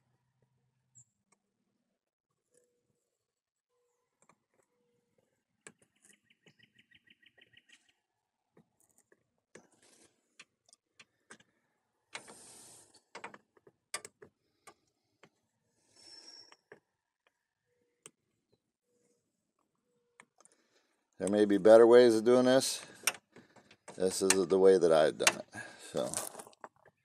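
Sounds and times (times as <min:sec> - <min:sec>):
soft hisses: 0:12.3 - 0:12.9
welding iron tapping plastic: 0:22.9 - 0:24.6, 0:25.2 - 0:25.5.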